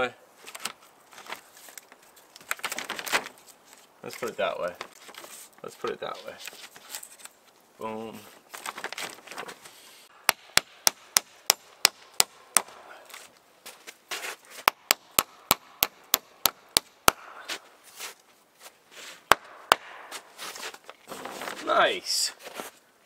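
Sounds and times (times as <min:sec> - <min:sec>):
hammer striking nails into wood: 0:10.2 - 0:12.8, 0:14.6 - 0:17.3, 0:19.3 - 0:20.2.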